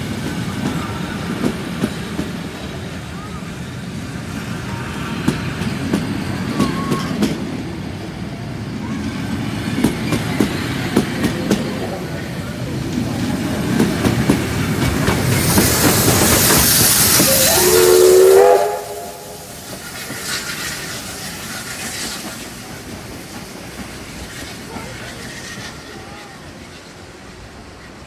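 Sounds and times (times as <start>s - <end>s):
carriages rumbling: 0.0s - 27.8s
steam hissing: 0.0s - 28.0s
steam whistle blast: 17.0s - 20.7s.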